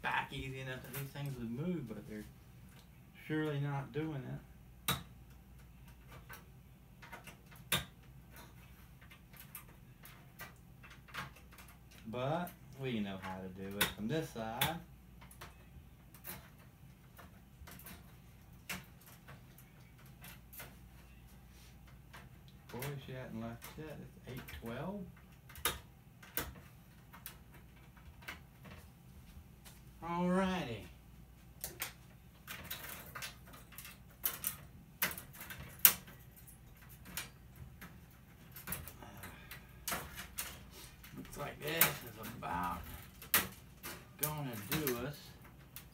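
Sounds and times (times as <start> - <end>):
faint low hum: 0.0 - 45.9
plastic and metal parts rattling: 31.6 - 45.9.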